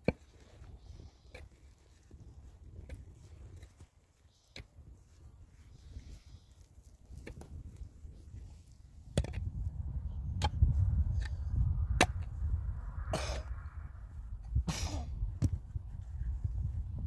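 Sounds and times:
pick-mattock striking stony soil: 0:00.0 - 0:04.9, 0:06.8 - 0:09.7.

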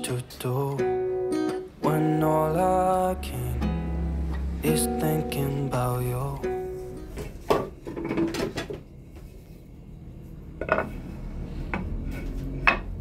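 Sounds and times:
kitchen things knocking and clattering: 0:07.2 - 0:08.9
chopping board laid on tiled counter: 0:10.6 - 0:11.0, 0:11.7 - 0:13.0.

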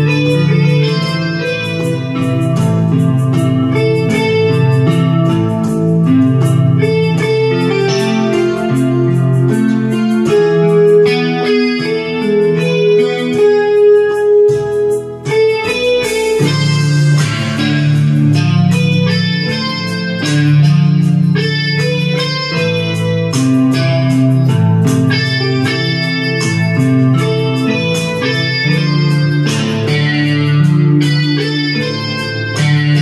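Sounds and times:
electronic keyboard melody: 0:00.0 - 0:33.0
held bass notes: 0:00.0 - 0:33.0.

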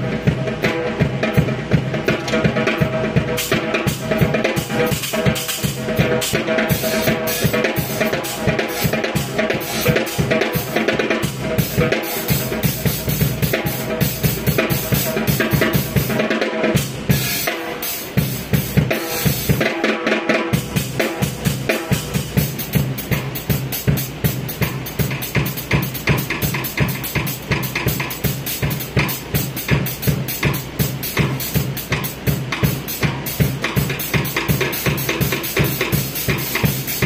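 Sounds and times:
backing music track: 0:00.0 - 0:37.0
drum kit playing: 0:00.0 - 0:37.0.

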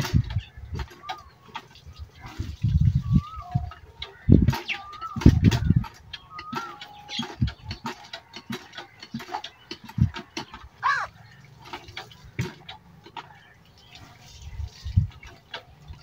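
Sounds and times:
birds whistling: 0:00.0 - 0:12.2
clicks and drips: 0:00.0 - 0:16.0
hand pump thuds: 0:00.0 - 0:16.0
water splashing: 0:07.9 - 0:16.0.

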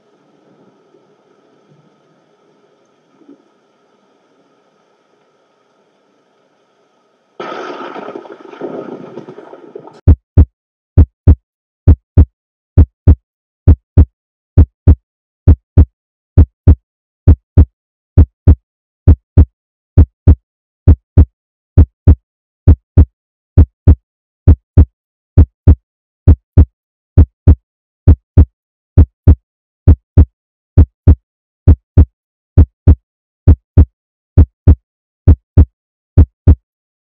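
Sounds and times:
heartbeat thumps: 0:10.0 - 0:36.6.

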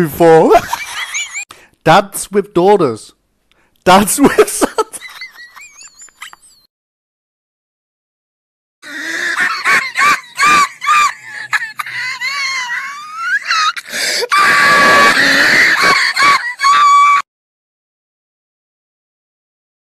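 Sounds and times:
cartoon duckling crying and wailing: 0:08.9 - 0:17.2.

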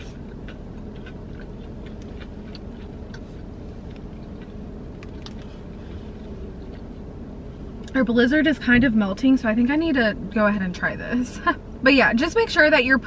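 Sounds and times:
soft chewing: 0:00.0 - 0:07.2
car cabin hum: 0:00.0 - 0:13.0.

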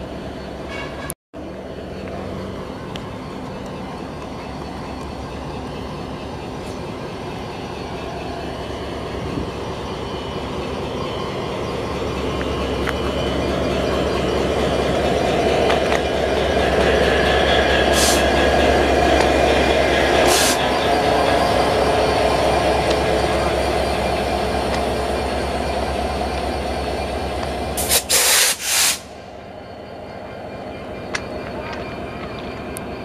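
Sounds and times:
locomotive engine idling: 0:01.4 - 0:28.2
short hisses: 0:27.8 - 0:29.2.

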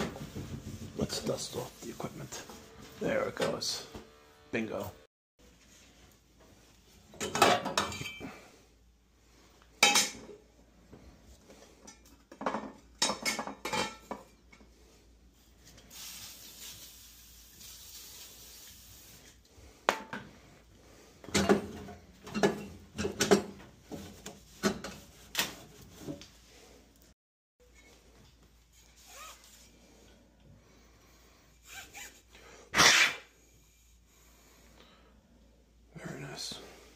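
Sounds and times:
aerosol can spraying: 0:15.9 - 0:19.1.

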